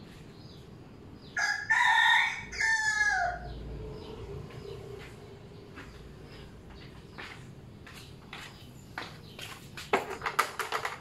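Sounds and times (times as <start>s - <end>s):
rooster crowing: 1.4s - 4.1s.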